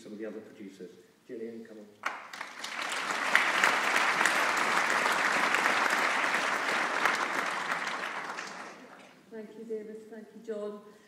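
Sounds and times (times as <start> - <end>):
audience applauding: 2.0 - 9.2.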